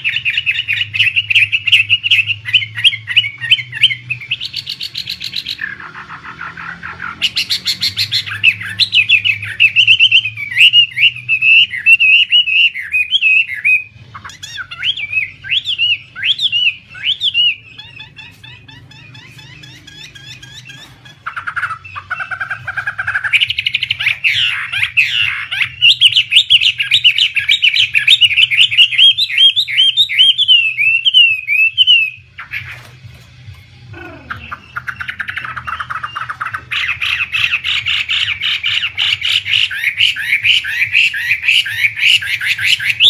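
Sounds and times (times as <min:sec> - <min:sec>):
bird fast repeated notes: 0:00.0 - 0:33.2, 0:33.9 - 0:43.0
bird singing whistled phrases: 0:23.1 - 0:32.2.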